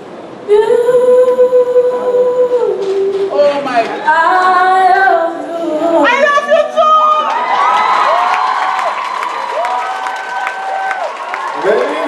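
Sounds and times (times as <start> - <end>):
boy singing into a microphone: 0.5 - 6.8.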